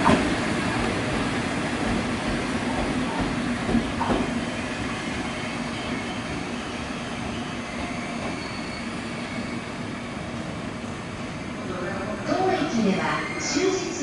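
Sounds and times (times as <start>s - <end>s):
train knocks: 0.0s - 8.8s
train wheels on rails: 0.0s - 11.7s.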